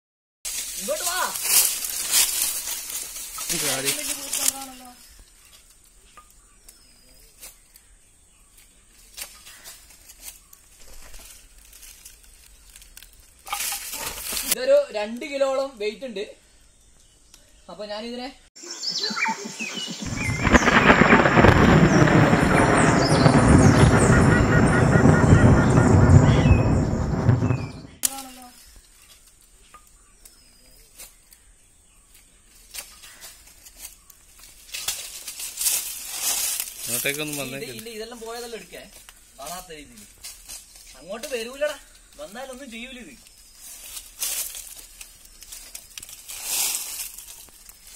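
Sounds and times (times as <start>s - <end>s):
dry leaves rustling and crackling: 0.4s - 15.6s, 28.0s - 47.9s.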